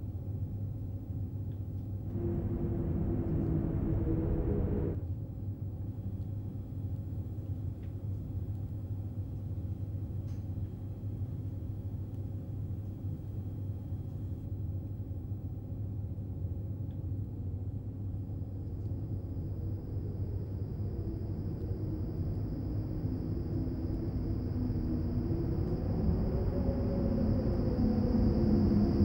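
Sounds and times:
low rumble: 2.0s - 5.0s, 18.9s - 29.0s.

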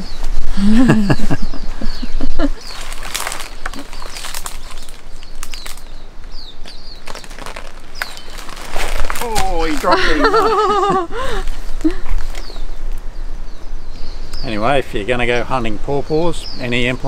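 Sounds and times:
bird chirps: 0.0s - 17.0s
leaves rustling with knocks: 2.5s - 13.1s.

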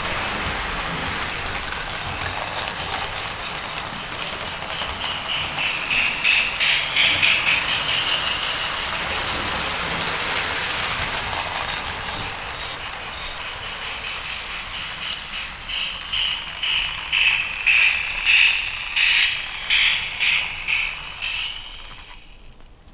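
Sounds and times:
toy train wheels and motors rattling: 0.0s - 22.6s
quick clicks: 1.5s - 4.1s, 10.8s - 13.4s.

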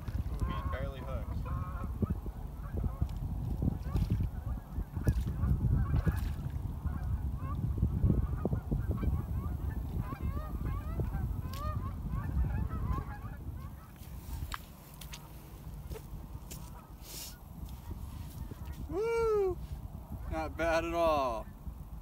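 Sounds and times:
geese honking: 0.4s - 3.0s, 8.2s - 14.0s.

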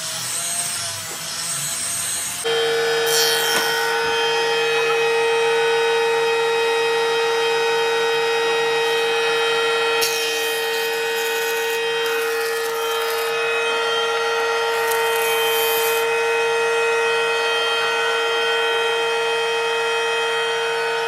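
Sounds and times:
cutterhead shaving wood board: 0.0s - 5.8s, 7.2s - 16.1s
jointer motor whine: 0.0s - 21.0s.

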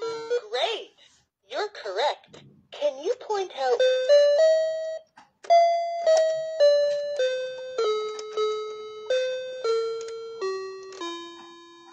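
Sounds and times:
electronic toy piano notes: 0.0s - 0.7s, 3.5s - 11.9s.

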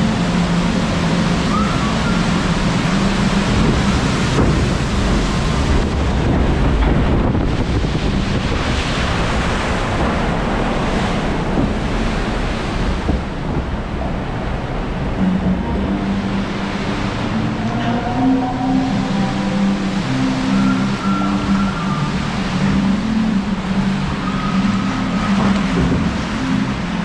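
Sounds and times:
water rushing and splashing: 0.0s - 27.0s.

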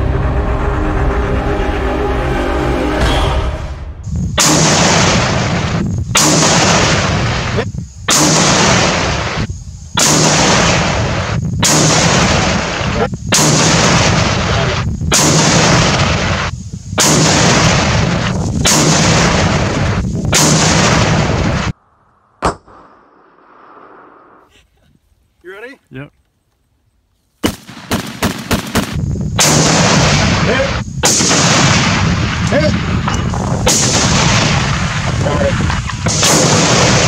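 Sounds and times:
rifle shots: 4.4s - 21.7s, 27.4s - 37.0s.

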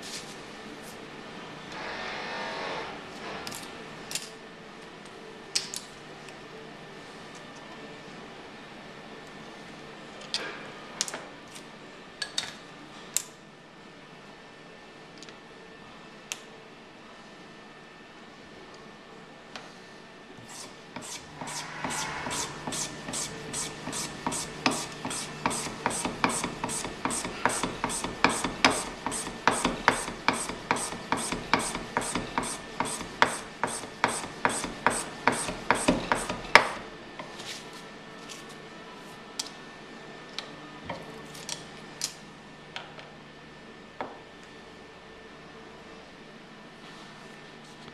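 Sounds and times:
blade rasping on cane: 20.4s - 36.8s.

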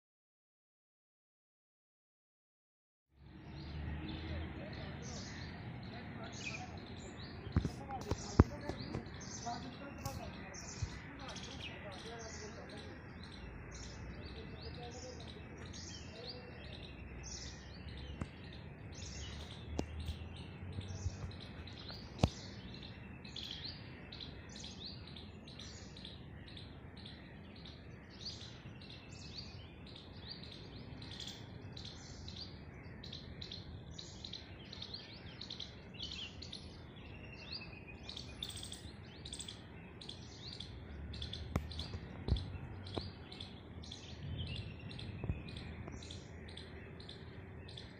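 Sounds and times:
birds chirping: 3.2s - 47.9s.

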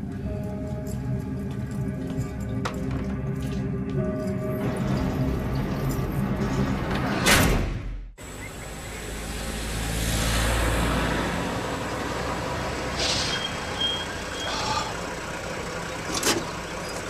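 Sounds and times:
truck engine rumble: 0.0s - 7.4s, 8.2s - 17.0s
high brake squeal: 13.0s - 15.0s.

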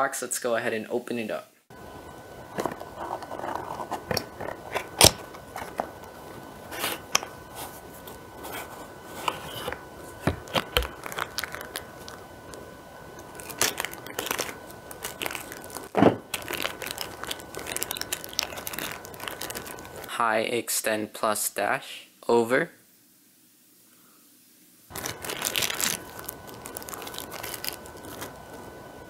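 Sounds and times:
plastic bags crinkling and rustling: 2.5s - 20.1s, 24.9s - 28.9s.

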